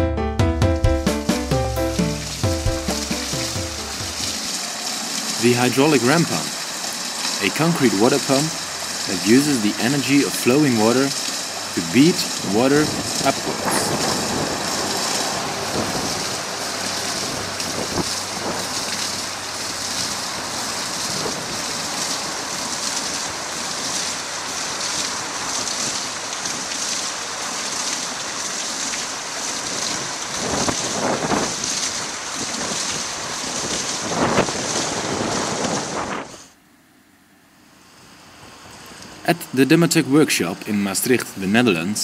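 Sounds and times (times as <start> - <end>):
water spraying and splashing: 1.0 - 36.4.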